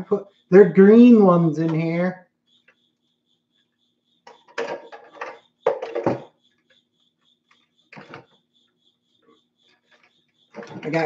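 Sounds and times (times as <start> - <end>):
cricket chirping: 0.0 - 11.0
plastic toy clattering and rustling: 4.3 - 6.3.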